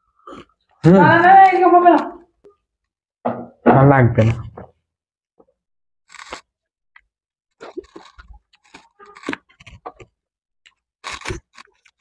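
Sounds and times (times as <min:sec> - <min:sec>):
people chewing crunchy food: 0:00.0 - 0:01.6, 0:05.5 - 0:06.6, 0:07.5 - 0:12.0.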